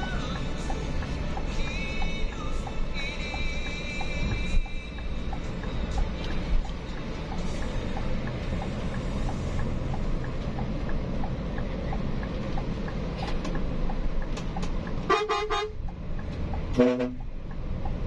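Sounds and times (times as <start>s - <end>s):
bus engine and road rumble: 0.0s - 18.0s
bus horn blast: 15.0s - 15.8s, 16.7s - 17.3s.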